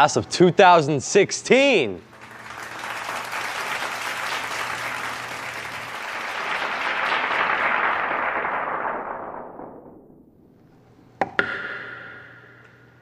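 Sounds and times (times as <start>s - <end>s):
crowd applauding: 2.1s - 9.8s.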